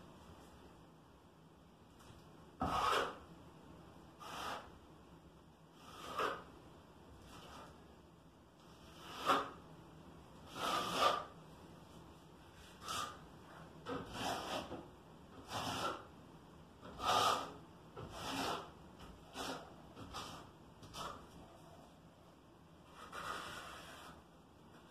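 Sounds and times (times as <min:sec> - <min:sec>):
trowel scraping tile adhesive: 0:02.6 - 0:03.2, 0:05.8 - 0:06.5, 0:08.8 - 0:09.6, 0:10.4 - 0:11.4, 0:12.8 - 0:13.2, 0:13.9 - 0:14.8, 0:15.4 - 0:16.1, 0:16.8 - 0:18.7, 0:19.3 - 0:21.2, 0:22.9 - 0:24.2.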